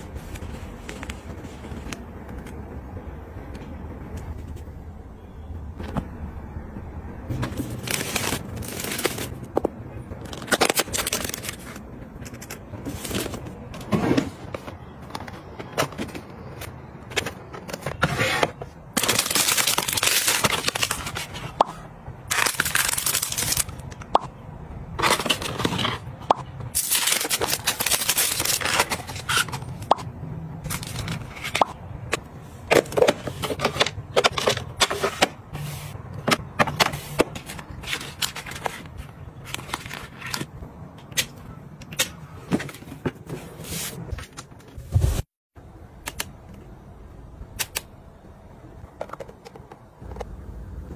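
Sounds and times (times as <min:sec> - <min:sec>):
packaging crinkling and tearing: 0:07.7 - 0:09.4, 0:10.2 - 0:13.4, 0:19.0 - 0:21.4, 0:22.3 - 0:23.9, 0:26.7 - 0:29.8.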